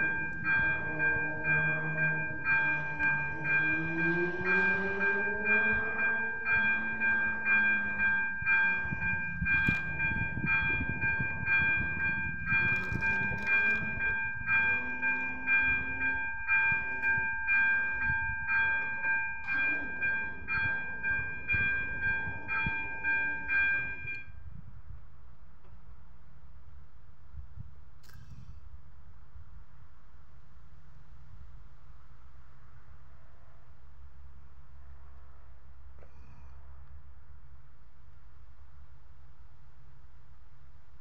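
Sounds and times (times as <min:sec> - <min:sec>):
rising hum: 0:00.0 - 0:12.7
level-crossing warning bell: 0:00.0 - 0:24.6.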